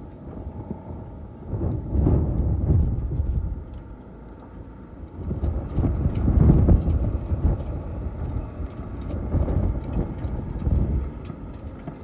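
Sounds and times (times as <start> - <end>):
wind buffeting microphone: 0.0 - 4.0, 4.9 - 12.0.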